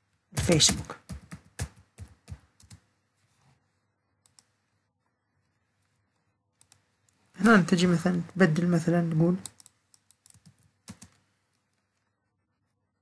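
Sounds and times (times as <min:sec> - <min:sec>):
typing on computer keyboard: 0:00.6 - 0:02.8, 0:09.4 - 0:11.2.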